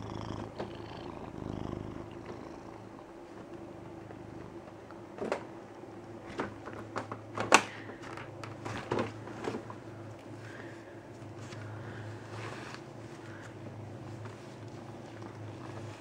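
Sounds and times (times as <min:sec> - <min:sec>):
cat purring: 0:00.0 - 0:05.2, 0:11.2 - 0:16.0.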